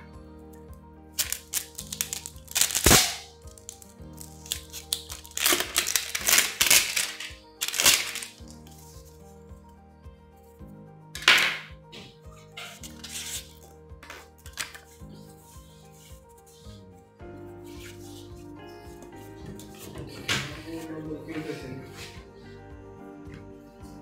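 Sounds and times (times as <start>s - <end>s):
quiet background music: 0.0s - 24.0s
paper booklets rustling: 1.2s - 2.9s, 3.5s - 9.2s, 12.7s - 15.0s.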